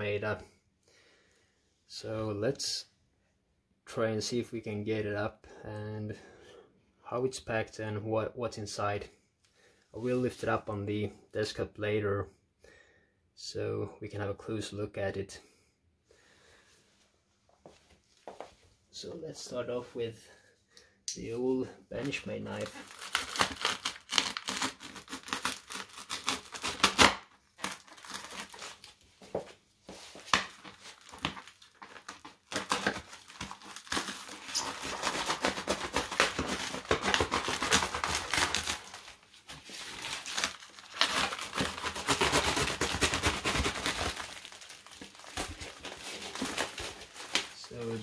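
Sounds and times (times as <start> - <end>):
tape crinkling and tearing: 22.0 - 29.1, 30.2 - 48.0
knife cutting packing tape: 22.6 - 29.0, 30.3 - 39.1, 39.8 - 47.5.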